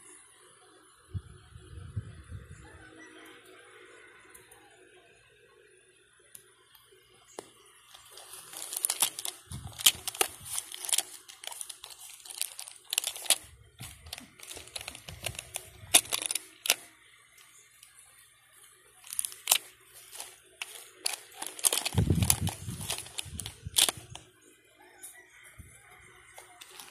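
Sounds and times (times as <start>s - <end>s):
plastic capsules clicking: 7.4s - 18.0s, 19.0s - 24.2s, 26.4s - 26.9s
tissue paper crinkling: 7.9s - 16.9s, 19.0s - 24.2s, 26.4s - 26.9s.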